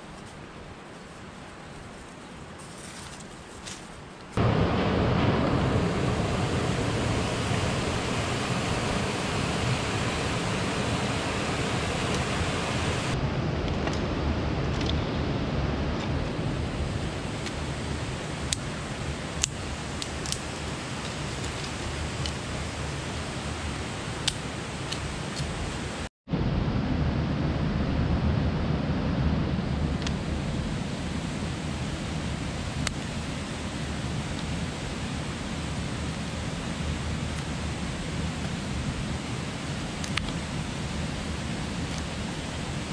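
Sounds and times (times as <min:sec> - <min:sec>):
river flowing: 0:04.4 - 0:13.2, 0:16.3 - 0:26.1
twigs clicking: 0:19.4 - 0:22.4.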